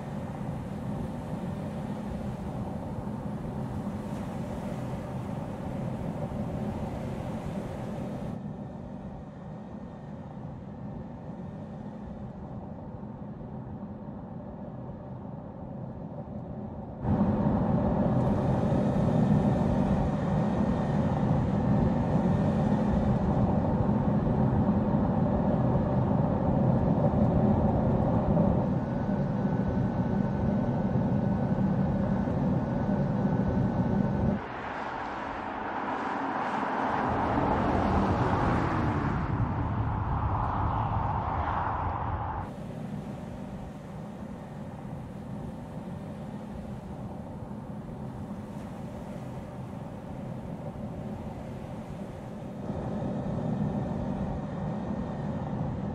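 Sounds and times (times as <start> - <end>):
car engine and tyre noise: 0.0 - 8.4, 31.6 - 55.9.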